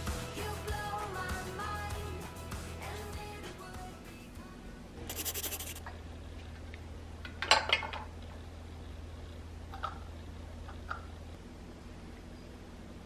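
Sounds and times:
low steady hum: 4.3s - 13.0s
scraping rustle on tray: 5.1s - 5.8s.

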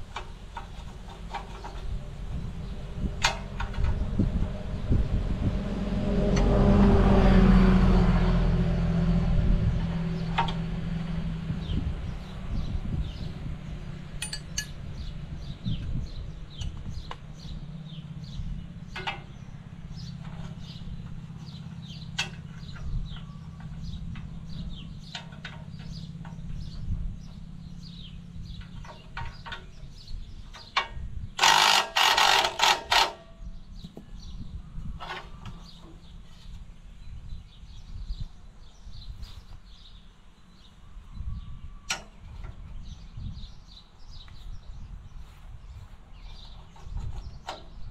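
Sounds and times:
hand tools clinking on metal: 14.2s - 14.8s.

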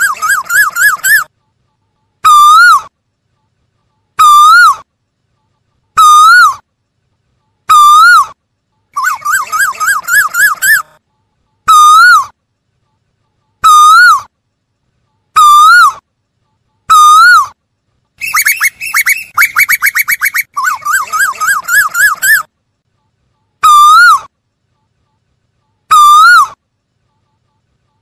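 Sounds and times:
koel calling: 0.0s - 1.3s, 9.0s - 11.0s, 13.6s - 14.3s, 18.2s - 22.5s
bird rising notes: 18.2s - 22.4s.

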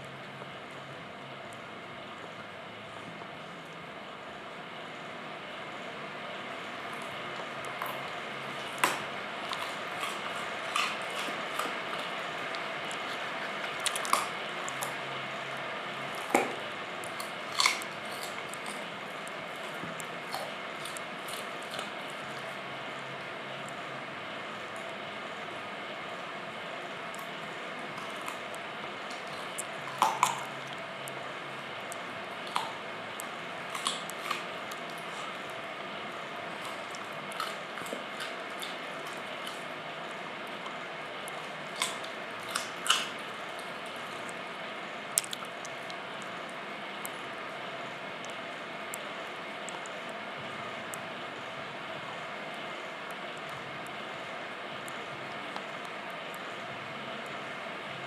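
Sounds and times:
dog chewing: 6.7s - 23.8s, 26.8s - 44.5s
dog crunching carrot: 6.7s - 23.9s, 26.2s - 47.2s.

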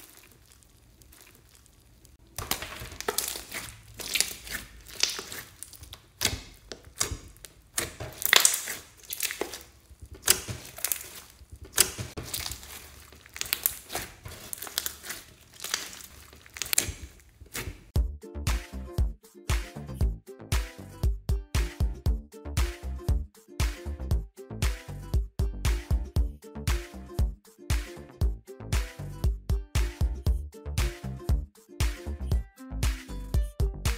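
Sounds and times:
slime squished by hand: 0.0s - 18.0s.

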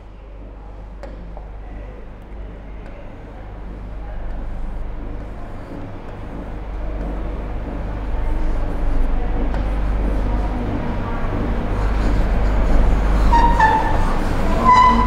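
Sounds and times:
low rumbling noise: 0.0s - 15.0s.

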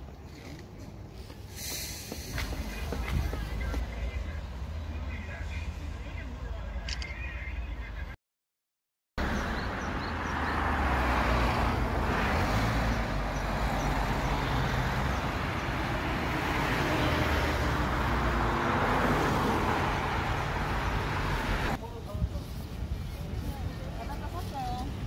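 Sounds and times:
cars driving past: 9.2s - 21.8s.

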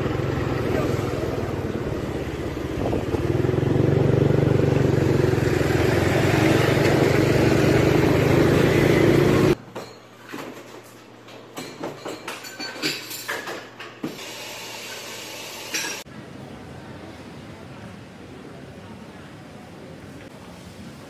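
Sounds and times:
motorcycle running: 0.0s - 9.6s
wind and road noise: 0.0s - 9.6s.

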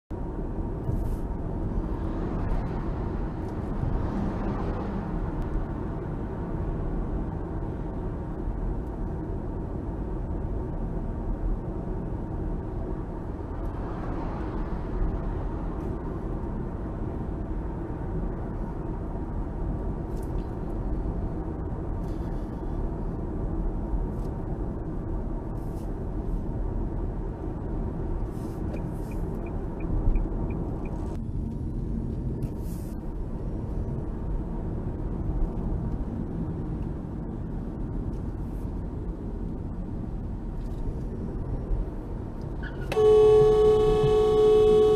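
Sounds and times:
car road and engine rumble: 0.1s - 44.9s.

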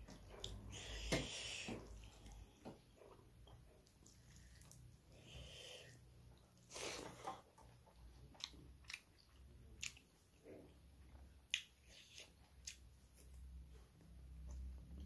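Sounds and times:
chewing: 1.8s - 5.4s, 6.4s - 13.5s.

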